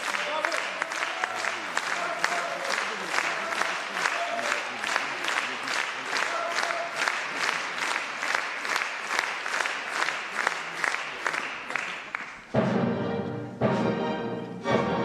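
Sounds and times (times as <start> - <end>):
audience clapping in rhythm: 0.0 - 12.9.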